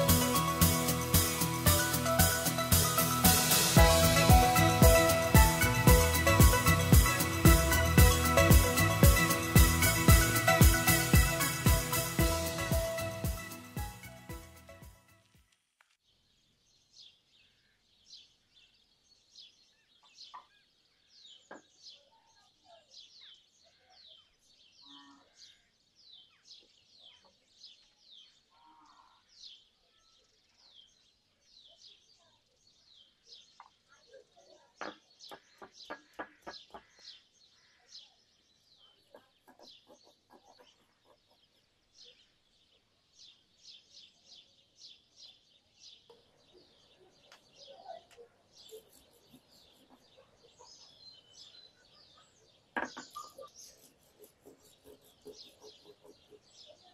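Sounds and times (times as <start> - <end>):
bird chirping: 16.1 - 56.9
stone roller knocking on stone: 52.8 - 53.2.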